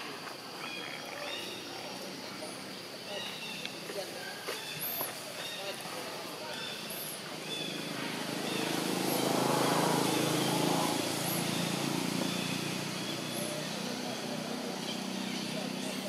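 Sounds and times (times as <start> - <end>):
faint outdoor background noise: 0.0 - 16.0
vehicle engine passing: 6.8 - 16.0.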